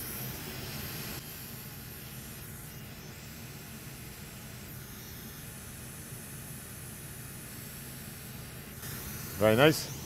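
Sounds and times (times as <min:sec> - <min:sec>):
fan hiss: 0:00.0 - 0:10.0.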